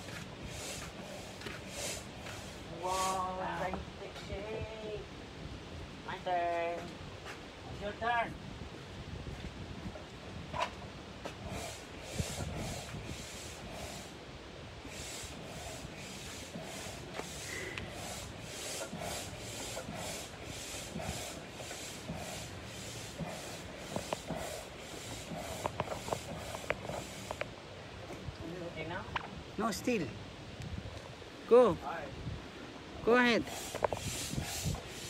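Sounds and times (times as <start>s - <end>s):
hand air pump strokes: 0.0s - 3.6s, 11.3s - 14.2s, 14.8s - 27.5s, 33.1s - 35.0s.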